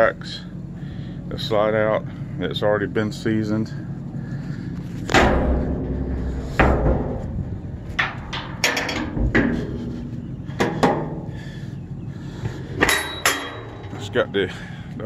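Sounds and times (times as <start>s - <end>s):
metal door clanks and bangs: 5.1s - 11.4s, 12.8s - 14.3s.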